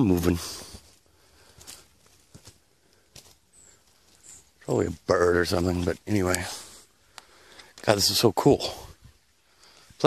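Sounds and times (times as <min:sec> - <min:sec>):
faint high-pitched bird chirp: 0:03.4 - 0:04.9.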